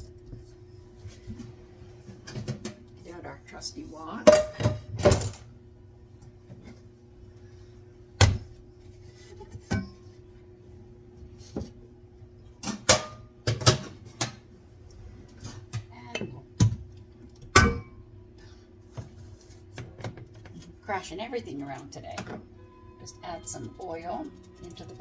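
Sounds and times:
steady low hum: 0.0s - 25.0s
pans knocking and clanking: 12.6s - 14.4s.

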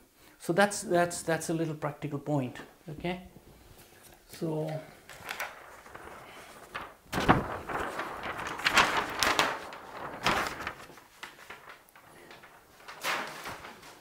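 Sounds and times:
stiff paper rustling: 3.6s - 14.0s.

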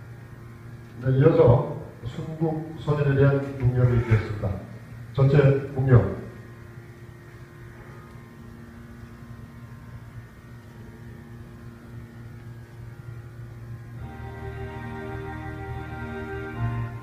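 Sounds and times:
low electrical hum: 0.0s - 17.0s
music with held notes: 11.1s - 17.0s.

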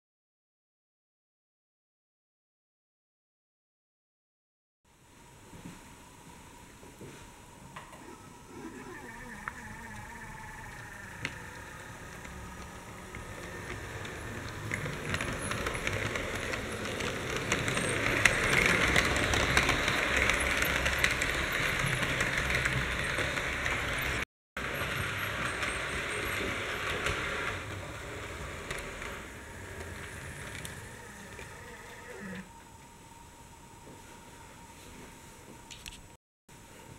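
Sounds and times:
model trains rattling on track: 9.6s - 31.6s.

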